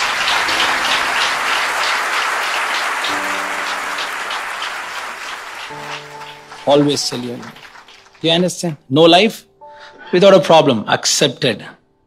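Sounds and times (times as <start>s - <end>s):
audience applauding: 0.0s - 8.8s
soft background music: 0.0s - 12.0s.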